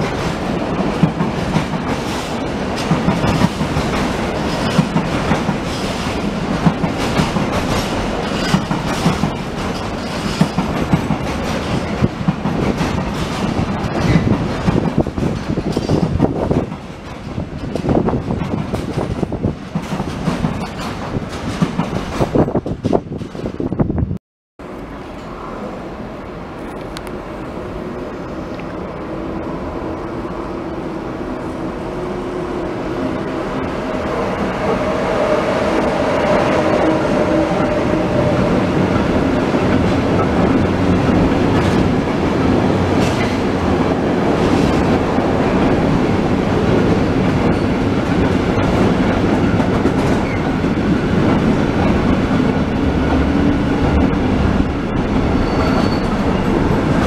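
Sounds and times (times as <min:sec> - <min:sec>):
train wheels clattering over rail joints: 0:00.0 - 0:23.7, 0:38.8 - 0:57.0
electric locomotive: 0:00.0 - 0:23.9, 0:24.6 - 0:57.0.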